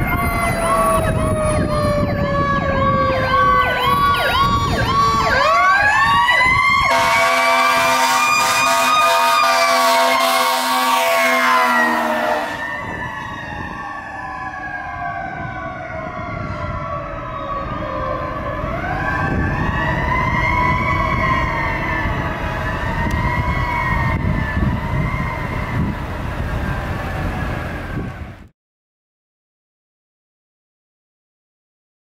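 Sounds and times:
truck engine rumble: 0:00.0 - 0:11.8, 0:12.4 - 0:28.5
fire truck siren wailing: 0:00.0 - 0:28.5
air horn: 0:06.9 - 0:12.7.

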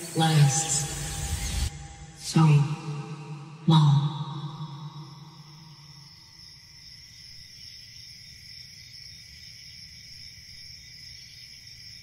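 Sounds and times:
low rumble: 0:00.0 - 0:04.7
crickets chirping: 0:00.0 - 0:12.0.

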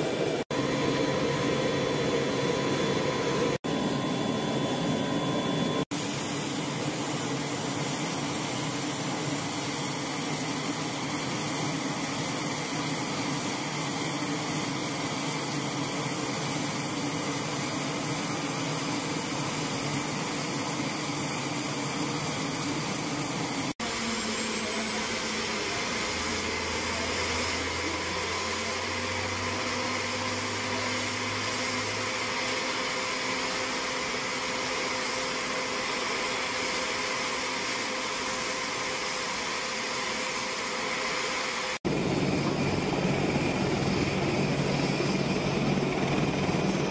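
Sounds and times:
helicopter turbine whine: 0:00.0 - 0:46.9
faint high whine: 0:00.6 - 0:12.8.

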